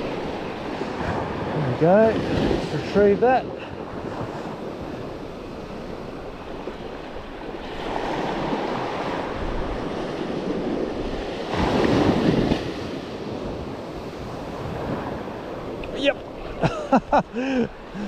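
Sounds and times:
waves breaking on beach: 0.0s - 18.0s
wind buffeting microphone: 0.0s - 18.0s.

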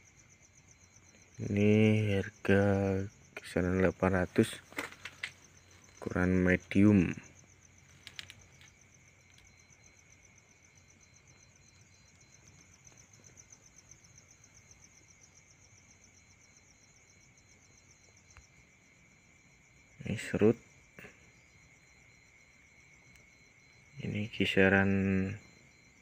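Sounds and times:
insects trilling: 0.0s - 26.0s
low insect whine: 0.0s - 26.0s
small clicks: 7.9s - 8.7s.

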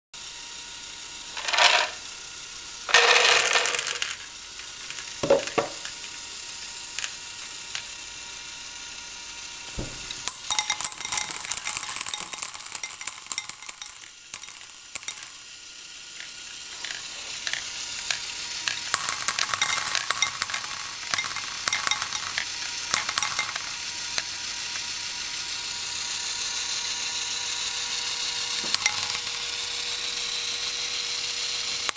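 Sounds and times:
plastic balls clattering: 1.4s - 2.0s, 2.9s - 7.9s, 10.2s - 15.4s, 16.2s - 24.3s, 28.6s - 29.5s.

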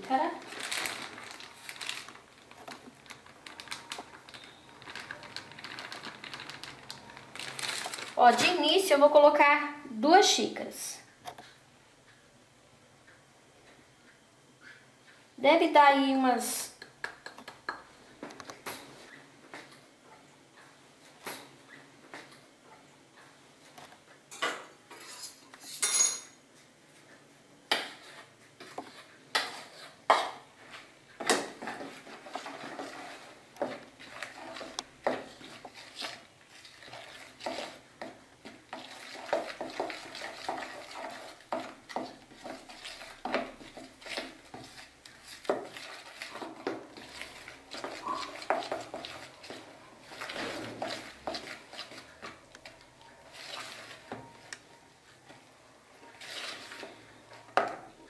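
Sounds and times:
utensil stirring batter in bowl: 27.8s - 30.1s, 30.7s - 54.7s, 56.1s - 57.0s.

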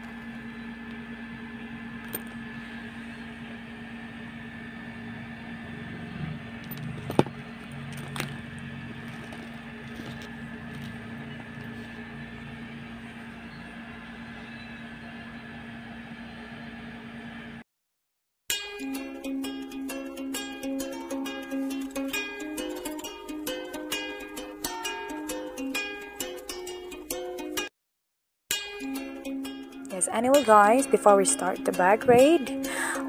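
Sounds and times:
steady low hum: 0.0s - 17.6s, 29.0s - 33.0s.

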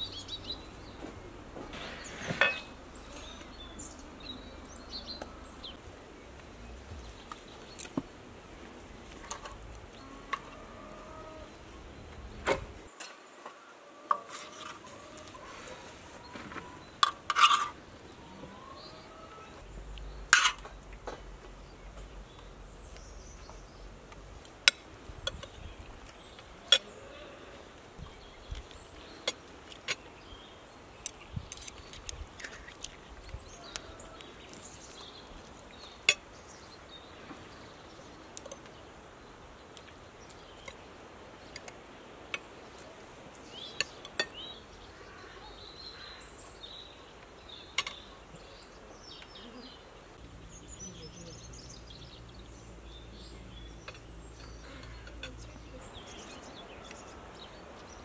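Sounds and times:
cutlery clinking on plates: 2.3s - 2.7s.

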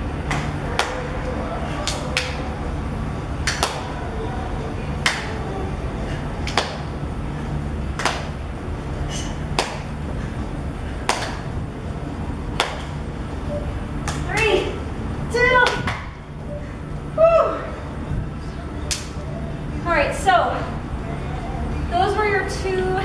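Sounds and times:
low background hum: 0.0s - 23.0s
sharp hand claps: 0.2s - 1.0s, 1.8s - 2.4s, 3.4s - 3.9s, 5.0s - 5.3s, 6.4s - 6.9s, 8.0s - 8.3s, 9.6s - 9.9s, 11.1s - 11.4s, 12.6s - 13.0s, 14.0s - 14.4s, 18.9s - 19.1s.

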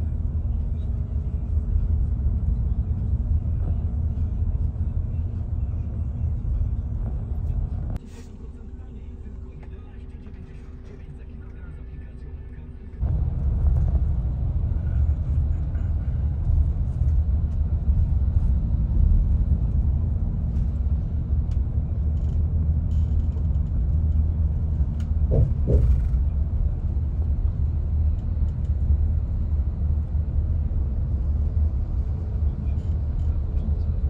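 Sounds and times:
vehicle interior rumble: 0.0s - 34.0s.

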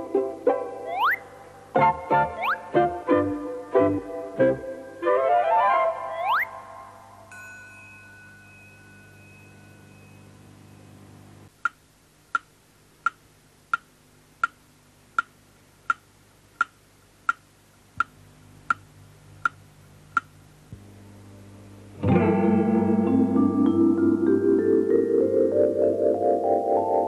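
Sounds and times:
slow clock-like ticking: 11.6s - 14.6s, 16.6s - 17.4s.

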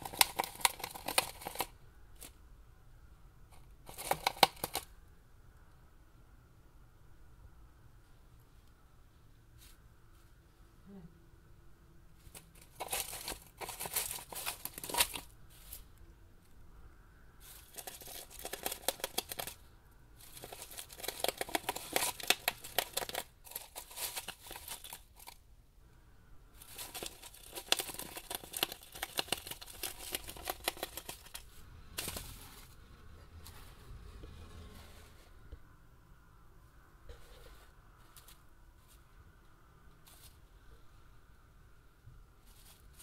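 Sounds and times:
gerbils gnawing cardboard: 0.0s - 2.4s, 3.8s - 4.9s, 12.2s - 15.8s, 17.4s - 25.4s, 26.6s - 32.3s.

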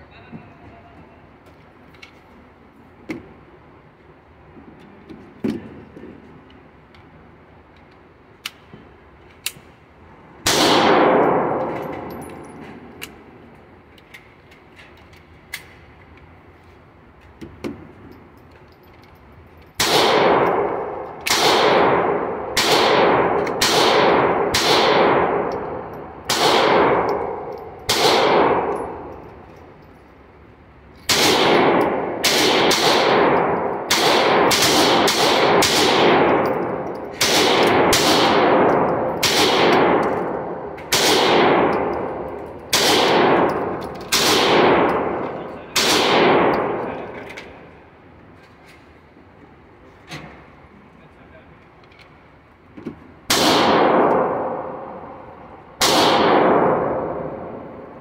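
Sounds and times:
gun handling clicks: 7.7s - 9.7s
pistol shots with ringing tail: 10.4s - 13.0s, 19.8s - 29.3s, 31.1s - 47.0s, 53.3s - 55.2s, 55.8s - 57.9s.

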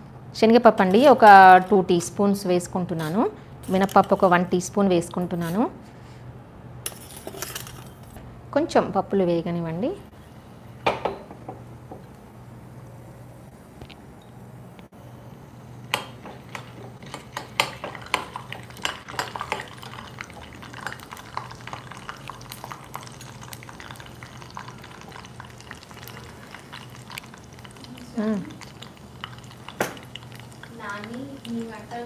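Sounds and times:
lentils crackling in oil: 15.9s - 32.0s.

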